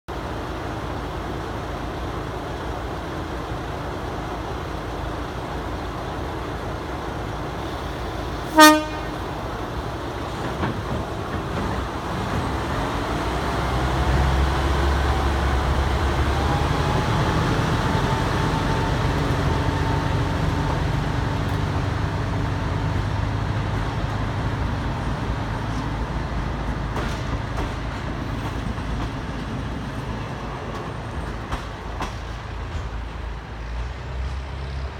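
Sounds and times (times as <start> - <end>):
diesel train engine: 0.1 - 34.9
train coaches rolling: 0.2 - 34.9
train horn toot: 8.5 - 9.3.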